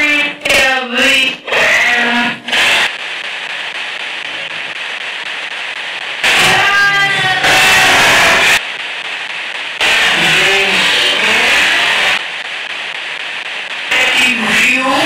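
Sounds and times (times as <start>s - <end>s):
radio static hissing: 0.0s - 15.0s
garbled radio voice snatches: 6.2s - 8.6s, 9.8s - 12.2s, 13.9s - 15.0s.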